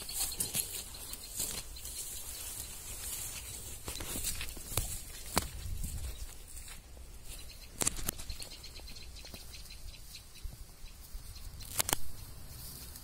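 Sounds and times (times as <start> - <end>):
footsteps through undergrowth: 0.0 - 13.0
sharp twig cracks: 7.8 - 8.3, 11.6 - 12.2.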